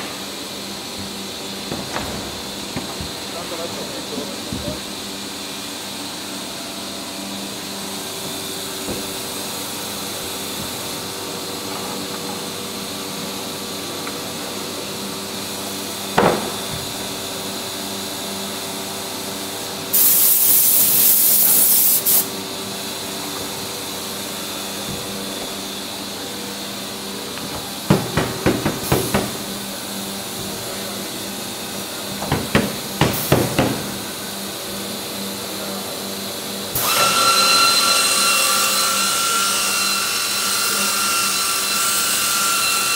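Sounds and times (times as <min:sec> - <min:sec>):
shop machinery humming: 0:00.0 - 0:42.9
compressed air hissing: 0:19.9 - 0:22.4
wooden panel knocking and clattering: 0:27.4 - 0:29.4, 0:32.2 - 0:33.9.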